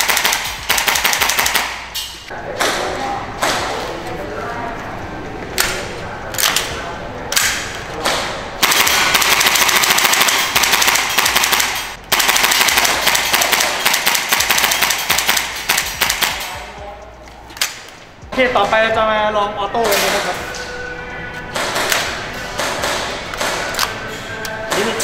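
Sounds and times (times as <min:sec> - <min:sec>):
airsoft rifle shots: 0:00.0 - 0:01.9, 0:07.4 - 0:16.6.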